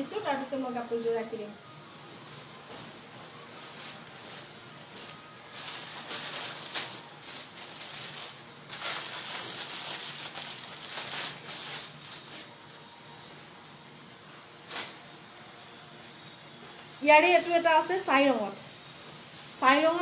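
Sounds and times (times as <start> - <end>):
cloth rustling and crinkling: 1.9 - 12.6.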